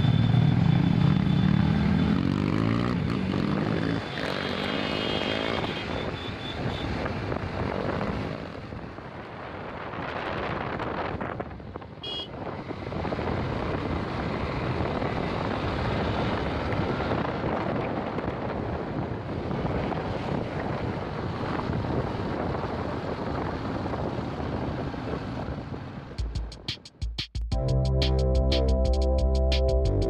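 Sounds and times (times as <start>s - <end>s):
vehicle running: 0.0s - 26.9s
wind rushing over microphone: 6.8s - 26.4s.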